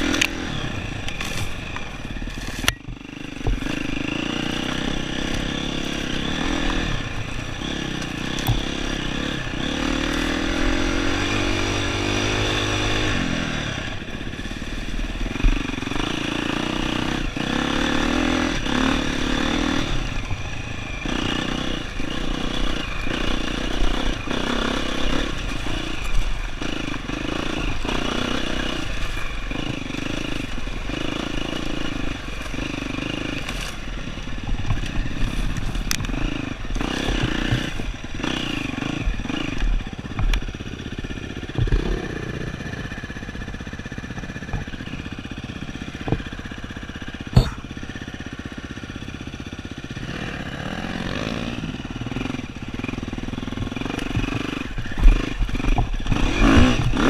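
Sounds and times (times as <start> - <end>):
dirt bike engine revving: 0.0 - 57.0
bike knocks and clatter: 1.2 - 6.8, 8.0 - 9.1, 34.4 - 38.0, 41.4 - 42.4, 43.9 - 45.1, 45.9 - 46.6, 47.2 - 48.0, 53.5 - 57.0.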